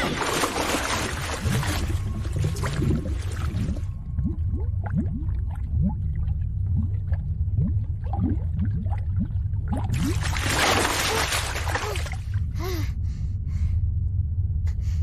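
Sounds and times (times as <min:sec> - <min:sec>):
deep underwater rumble: 0:00.0 - 0:10.9
bubbles gurgling: 0:00.0 - 0:12.2.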